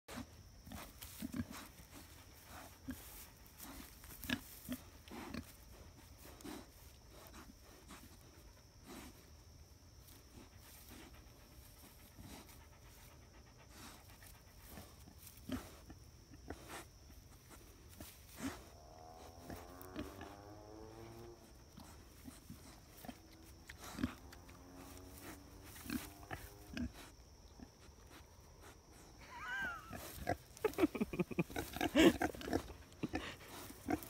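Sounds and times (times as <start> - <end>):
dog panting and snuffling: 0.1 - 9.4, 10.2 - 15.9, 30.0 - 34.0.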